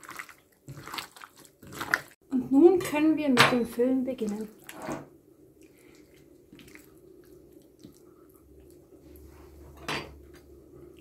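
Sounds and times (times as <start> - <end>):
wet squishing of raw chicken: 0.0 - 2.2, 4.2 - 4.9, 5.5 - 9.0.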